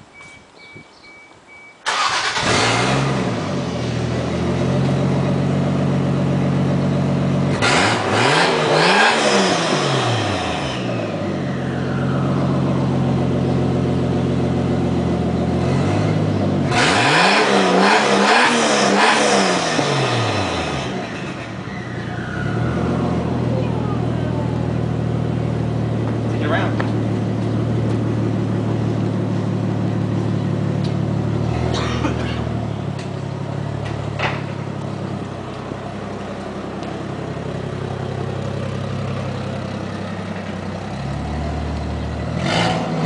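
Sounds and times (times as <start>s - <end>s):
car engine idling: 1.8s - 7.7s, 10.1s - 16.8s, 19.8s - 42.5s
car engine starting: 1.8s - 43.0s
car engine revving in blips: 1.9s - 6.0s, 6.8s - 24.0s, 36.4s - 43.0s.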